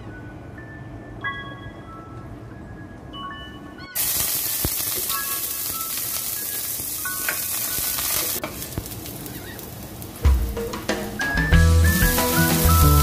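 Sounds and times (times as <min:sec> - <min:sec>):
garlic sizzling in oil: 0:04.0 - 0:13.0
background music: 0:10.2 - 0:13.0.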